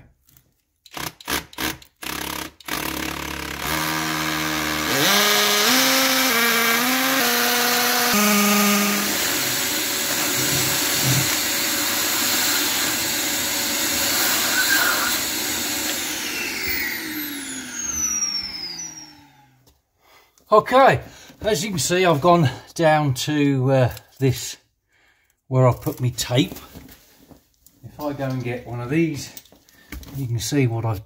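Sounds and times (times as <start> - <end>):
drill grinding into concrete: 0.9 - 19.5
motor winding down: 2.0 - 19.6
vacuum nozzle sucking dust: 3.6 - 19.5.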